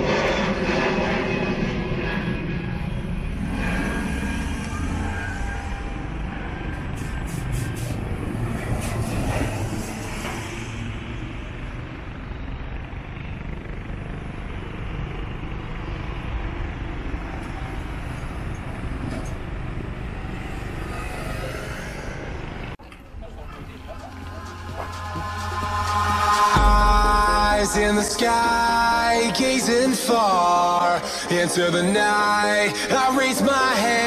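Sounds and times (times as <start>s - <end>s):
low engine rumble: 0.0s - 34.0s.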